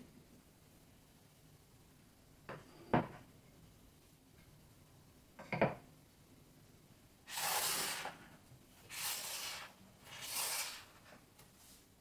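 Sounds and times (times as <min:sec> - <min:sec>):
short hissing swishes: 0:07.3 - 0:08.2, 0:08.9 - 0:11.0.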